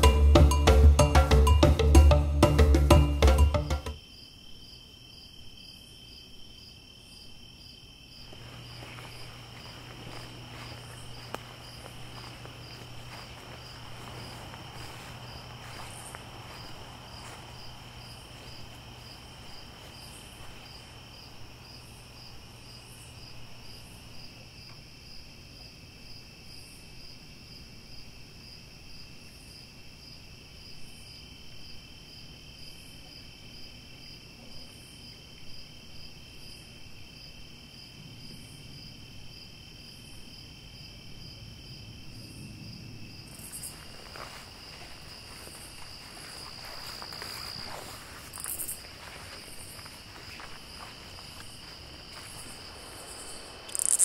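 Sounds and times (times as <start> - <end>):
higher insect call: 0.0 - 54.0
crickets trilling: 3.3 - 54.0
faint rustling: 8.2 - 21.5, 43.3 - 54.0.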